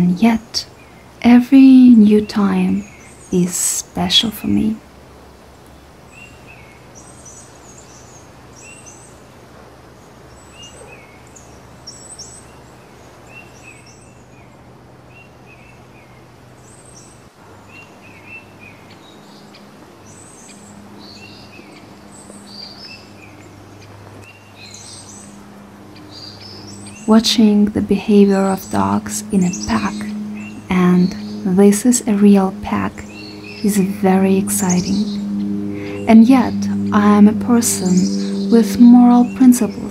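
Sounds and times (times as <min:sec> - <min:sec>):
songbirds chirping: 0:00.0 - 0:04.9, 0:05.6 - 0:39.9
faint low hum: 0:17.5 - 0:39.9.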